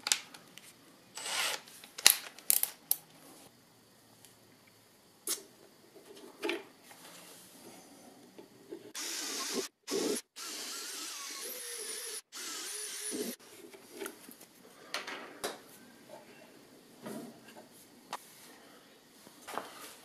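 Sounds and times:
cordless drill boring into wood: 1.2 - 1.6, 9.0 - 13.4.

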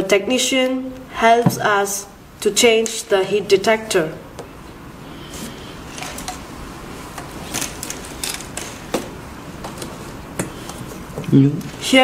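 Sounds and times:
steady hiss: 0.9 - 12.0.

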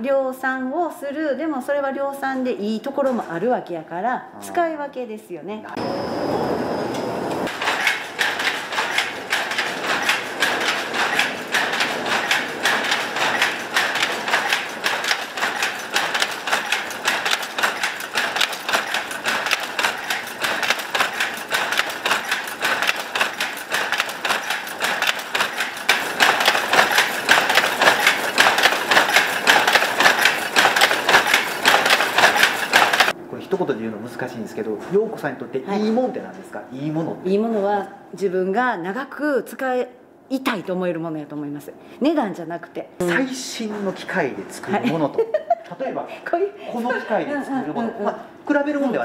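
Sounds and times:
power loom clattering: 6.8 - 33.2.

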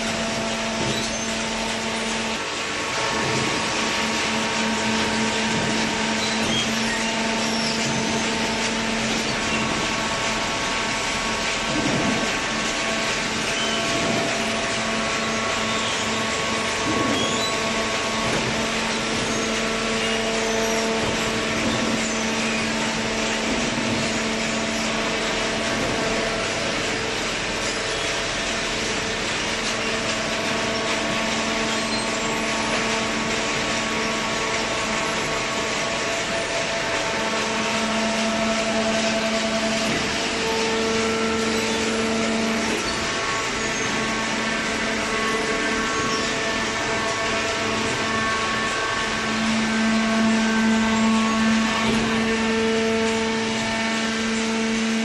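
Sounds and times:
baler machine hum: 0.0 - 55.0.

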